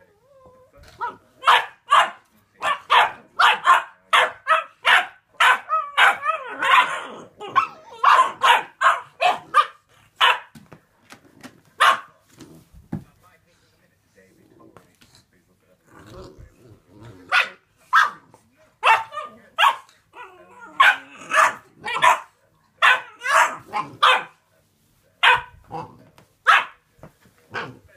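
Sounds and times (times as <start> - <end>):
puppy barking: 1.0 - 10.6, 11.8 - 12.2, 17.3 - 18.2, 18.8 - 24.4, 25.2 - 26.8.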